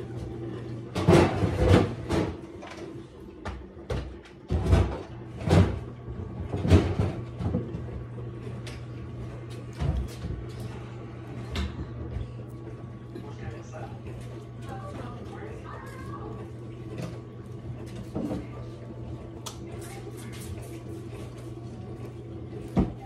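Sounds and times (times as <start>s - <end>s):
kitchen knocks and bangs: 0.9s - 2.4s, 3.4s - 5.9s.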